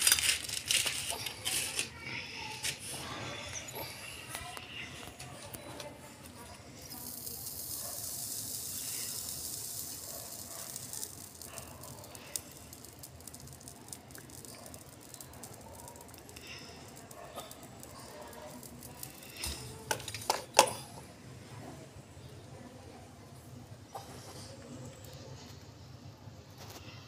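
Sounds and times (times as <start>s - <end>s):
high hiss: 7.0s - 10.1s.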